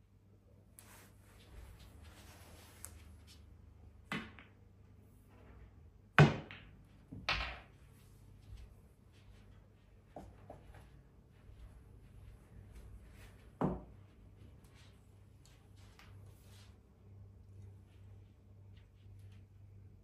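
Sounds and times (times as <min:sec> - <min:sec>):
pool balls knocking: 0:06.2 - 0:07.7.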